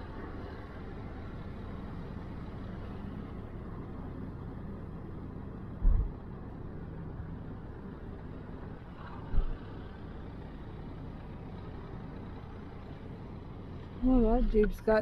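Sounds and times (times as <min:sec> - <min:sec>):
car driving slowly: 0:00.0 - 0:15.0
short low thump: 0:05.8 - 0:06.1.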